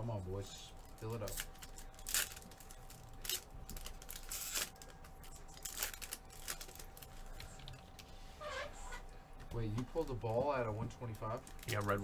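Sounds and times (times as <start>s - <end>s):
packaging crinkling and tearing: 0.8s - 7.8s, 11.2s - 12.0s.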